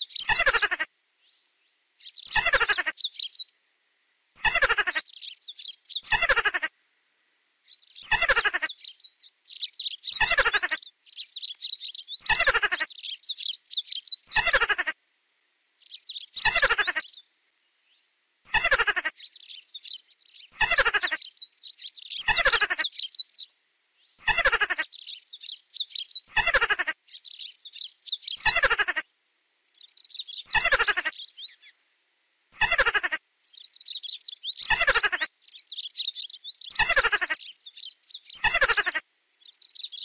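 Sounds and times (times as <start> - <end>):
high-pitched chirping: 18.6 - 23.4, 29.8 - 31.6, 32.6 - 40.0.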